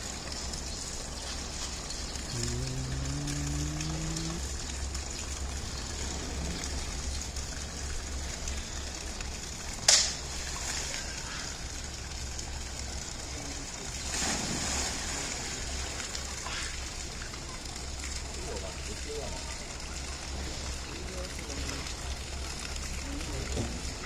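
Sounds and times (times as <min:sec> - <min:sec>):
slap on water: 0:09.8 - 0:10.2
big splash into water: 0:14.0 - 0:15.8.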